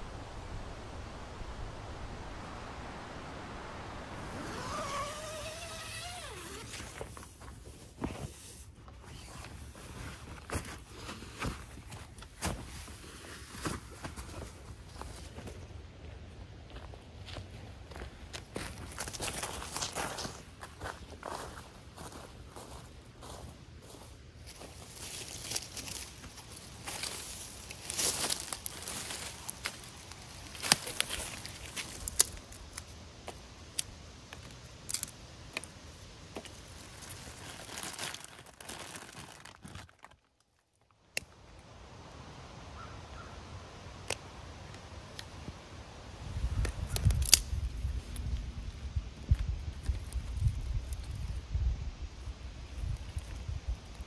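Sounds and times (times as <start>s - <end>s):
tent zipper pulled: 4.0s - 7.2s, 9.0s - 9.8s
footsteps on dry leaves: 17.3s - 33.4s, 34.4s - 40.1s.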